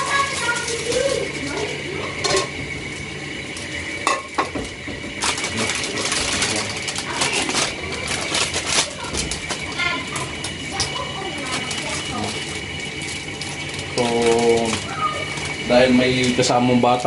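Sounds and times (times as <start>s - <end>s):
plastic packets crinkling: 0.0s - 1.2s, 5.2s - 16.5s.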